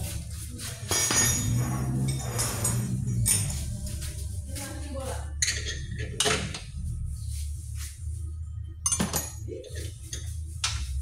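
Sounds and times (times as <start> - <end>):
hand tools clinking on metal: 0.8 - 3.7.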